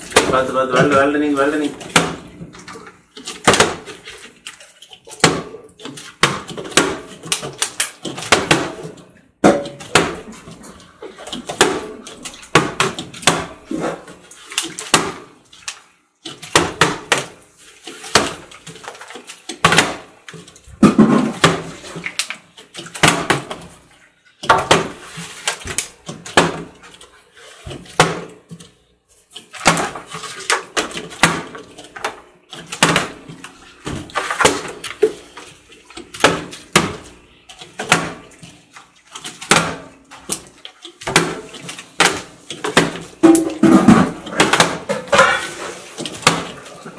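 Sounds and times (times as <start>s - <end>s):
plastic bottles landing on glass: 20.8s - 22.1s, 29.5s - 33.3s, 39.4s - 46.6s.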